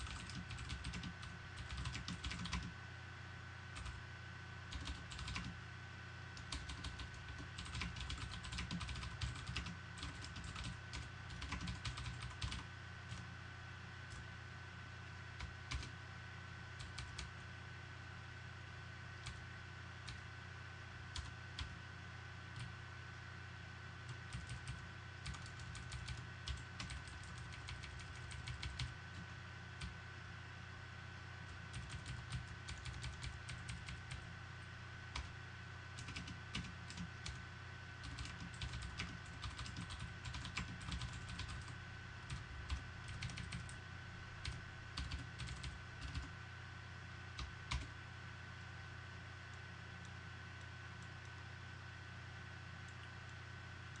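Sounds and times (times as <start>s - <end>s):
computer keyboard typing: 0.0s - 2.7s, 3.8s - 4.0s, 4.7s - 5.6s, 6.4s - 13.3s, 15.4s - 16.0s, 16.8s - 17.4s, 19.2s - 19.4s, 20.0s - 20.2s, 21.1s - 21.8s, 24.1s - 30.0s, 31.7s - 34.3s, 35.1s - 35.3s, 36.0s - 37.4s, 38.0s - 43.8s, 44.4s - 46.4s, 47.4s - 47.9s
steady low hum: 0.0s - 54.0s.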